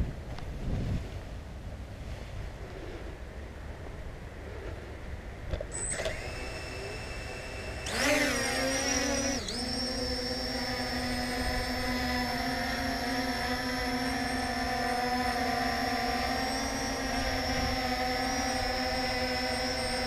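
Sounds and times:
drone motors whining: 5.5 - 20.0.

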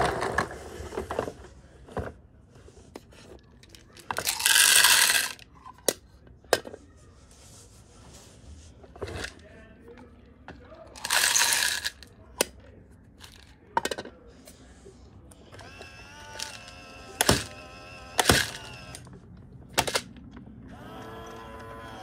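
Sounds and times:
plastic toys clattering and knocking: 0.0 - 6.8, 8.9 - 9.4, 10.0 - 14.5, 15.5 - 20.6.

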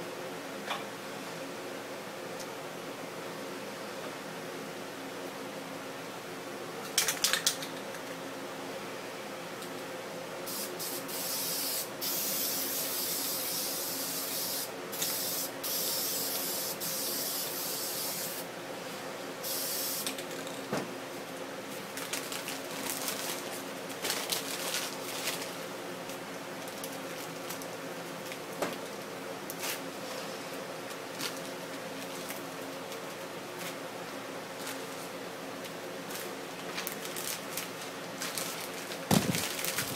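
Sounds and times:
spray paint can hissing: 10.5 - 18.5, 19.4 - 20.1.

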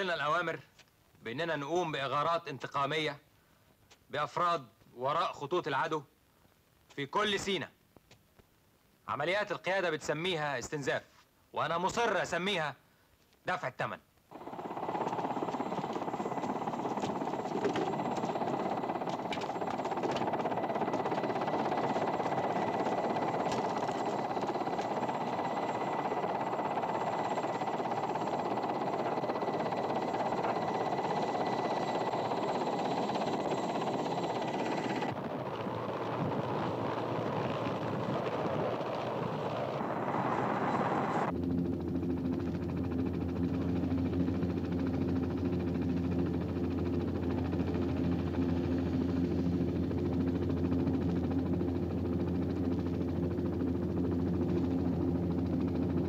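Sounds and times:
helicopter turbines and rotor: 0.0 - 0.6, 11.7 - 12.6, 14.2 - 56.0
high turbine whine: 14.3 - 56.0.

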